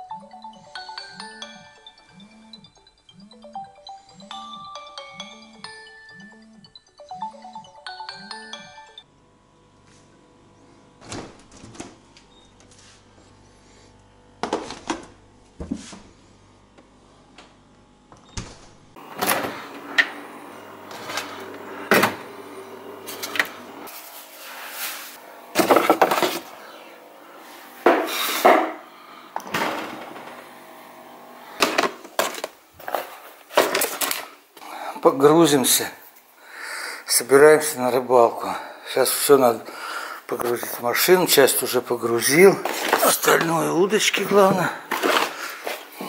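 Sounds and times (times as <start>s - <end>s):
refrigerator hum: 0.0s - 46.0s
food containers clunking: 25.5s - 26.5s, 44.9s - 45.8s.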